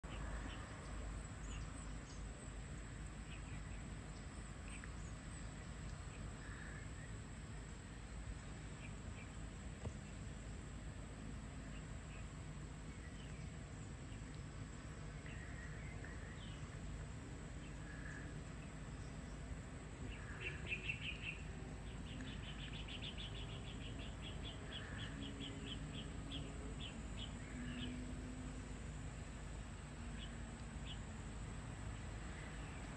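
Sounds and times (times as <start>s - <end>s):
birds chirping: 17.5s - 28.1s.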